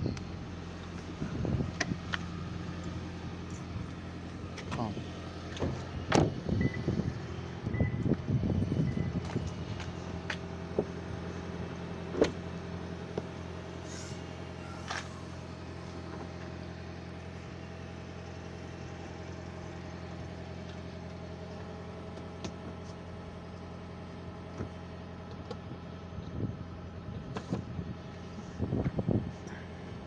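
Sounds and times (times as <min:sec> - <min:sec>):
car engine idling: 0:00.0 - 0:30.0
tailgate knock: 0:05.5 - 0:06.4.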